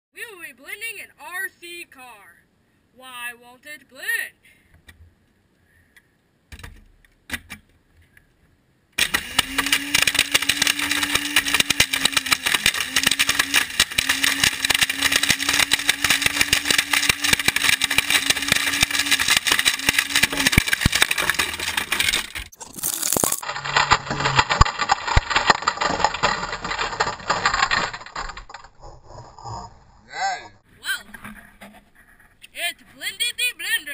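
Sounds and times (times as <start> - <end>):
blender motor humming: 9.0 - 28.5
plastic clattering in blender: 9.0 - 28.8.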